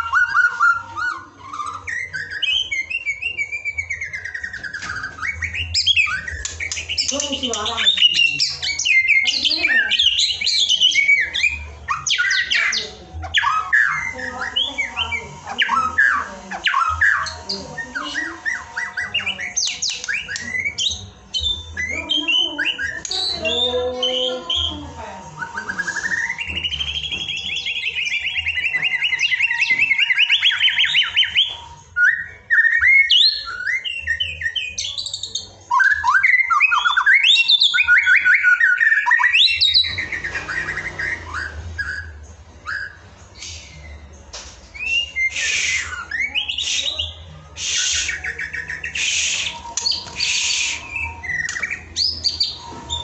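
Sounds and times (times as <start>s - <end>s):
harsh rasping bird calls: 0.0s - 44.2s, 44.8s - 53.0s
bird singing trills and whistles: 0.0s - 53.0s.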